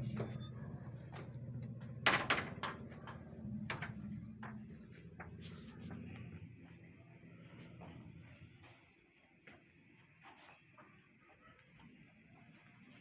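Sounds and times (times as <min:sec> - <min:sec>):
low hum: 0:00.0 - 0:08.7
crickets chirping: 0:00.0 - 0:13.0.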